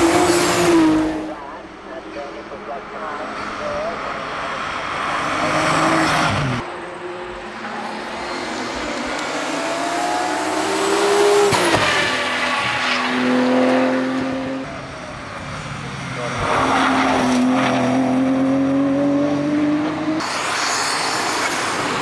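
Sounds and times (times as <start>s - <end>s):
car engine revving hard: 4.7s - 6.6s, 7.7s - 14.7s.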